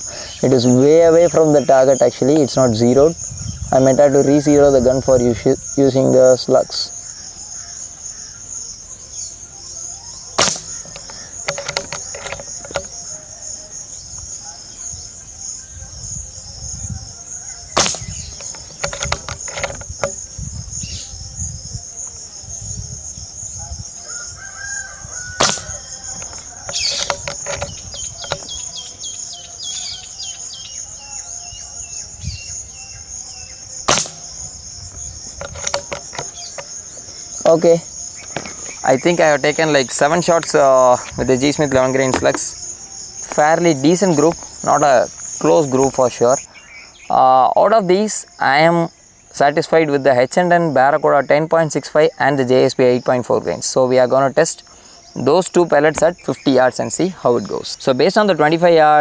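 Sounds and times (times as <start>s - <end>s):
insects buzzing: 0.0s - 59.0s
air rifle shots cracking: 10.4s - 12.9s, 17.8s - 20.2s, 25.4s - 28.5s, 33.8s - 34.5s.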